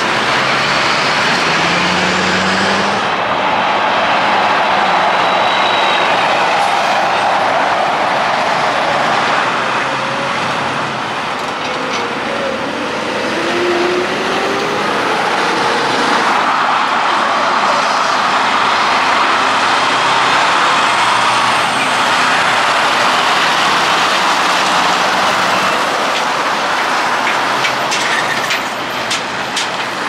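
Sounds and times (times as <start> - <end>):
highway traffic passing: 0.0 - 30.0.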